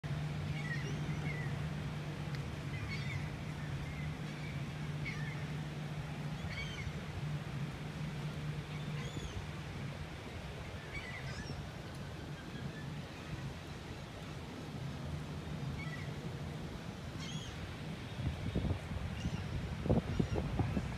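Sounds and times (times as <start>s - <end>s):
low drone of ship engines: 0.0s - 20.9s
seabirds calling: 0.3s - 1.7s, 2.6s - 7.2s, 8.2s - 13.8s, 17.0s - 20.9s.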